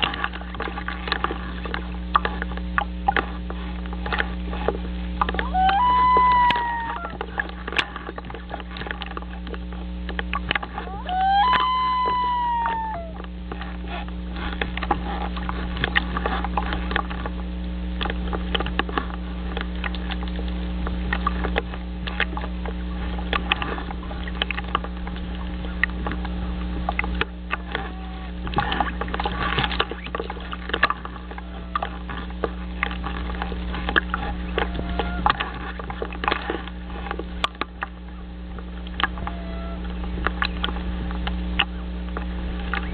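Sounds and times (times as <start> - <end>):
electrical hum: 0.0 - 42.9
loon call: 5.4 - 7.2, 10.8 - 13.2, 39.2 - 39.9.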